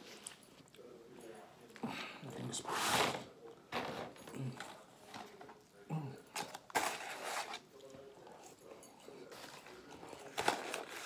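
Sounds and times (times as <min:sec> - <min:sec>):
paper packaging rustling: 0:06.4 - 0:07.7, 0:09.3 - 0:11.0.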